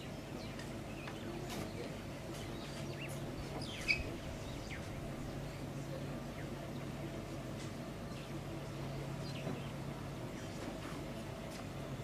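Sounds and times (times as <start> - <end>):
steady low hum: 0.0 - 12.0
birds chirping and whistling: 2.4 - 4.9.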